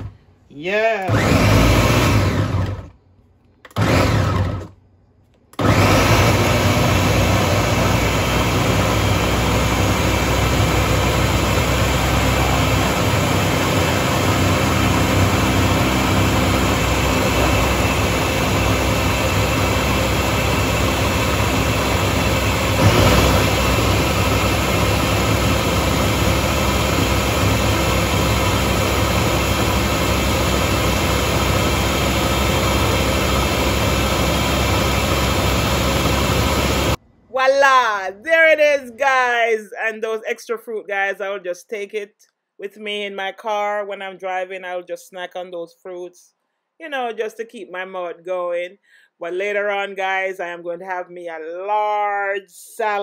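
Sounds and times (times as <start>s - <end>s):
blender blending fruit: 1.0s - 2.9s, 3.7s - 4.7s, 5.6s - 37.0s.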